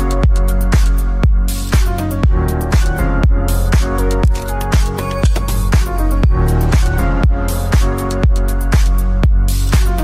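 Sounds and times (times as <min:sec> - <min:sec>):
steady kick drum: 0:03.2 - 0:09.4.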